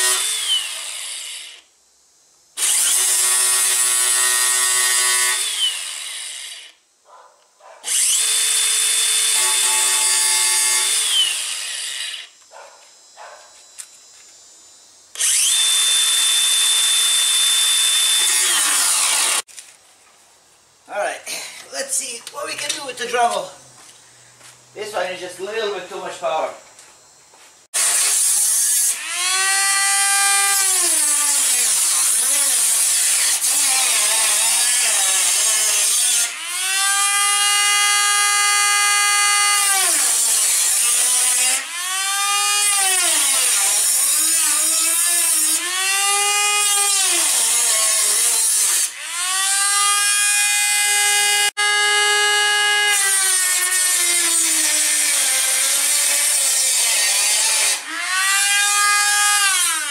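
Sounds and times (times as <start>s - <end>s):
power tool cutting sheet metal: 0.0s - 1.6s, 2.6s - 6.8s, 7.9s - 12.4s, 15.2s - 19.5s, 27.8s - 59.9s.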